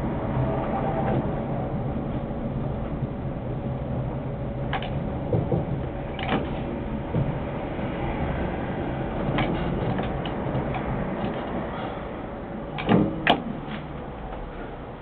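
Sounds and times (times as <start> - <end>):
tram hum and rumble: 0.0 - 15.0.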